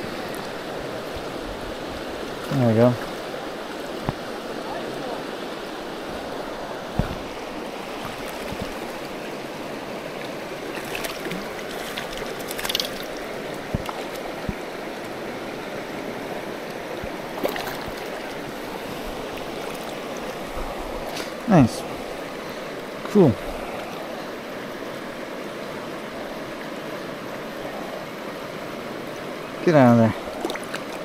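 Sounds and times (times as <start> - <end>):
river rushing over rocks: 0.0 - 31.0.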